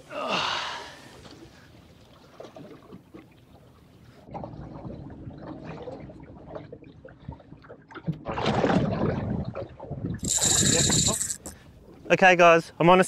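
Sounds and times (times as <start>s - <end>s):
water lapping around a boat: 0.0s - 13.0s.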